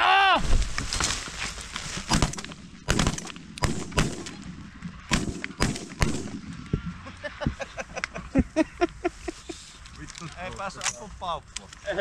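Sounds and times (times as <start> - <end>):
shotgun shots with echo: 2.1 - 6.6.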